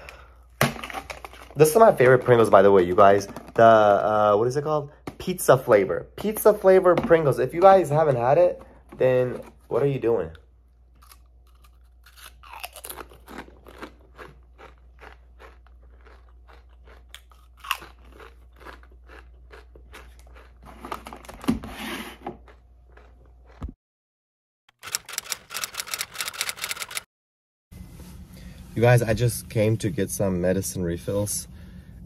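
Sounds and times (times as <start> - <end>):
crunching and chewing crisps: 10.9 - 21.4, 22.4 - 23.6
typewriter-style clicks: 24.7 - 27.1.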